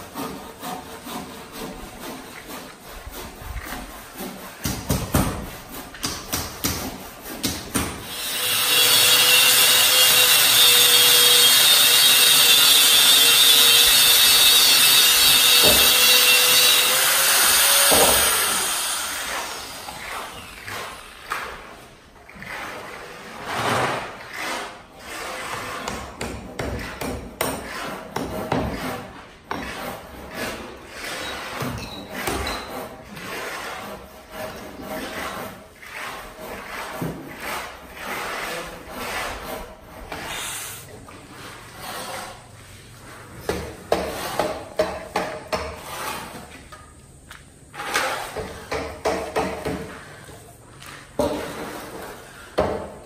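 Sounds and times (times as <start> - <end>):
wood scraping: 0.0 - 12.9, 22.4 - 46.8.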